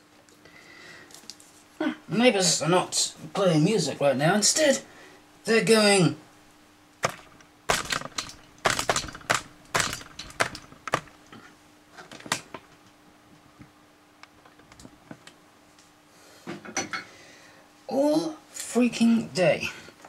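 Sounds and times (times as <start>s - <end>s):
faint steady hum: 0.0s - 20.0s
sharp clicks and knocks: 7.0s - 11.4s, 12.0s - 12.7s.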